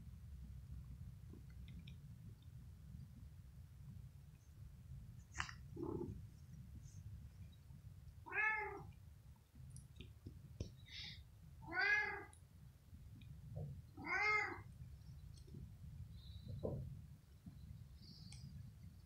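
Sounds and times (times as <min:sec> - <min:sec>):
cat meowing: 0:08.2 - 0:08.9, 0:11.6 - 0:12.4, 0:14.0 - 0:14.7.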